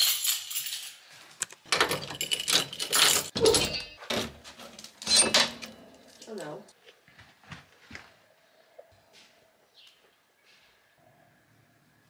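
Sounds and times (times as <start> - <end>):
door lock and handle rattling: 1.6 - 6.1.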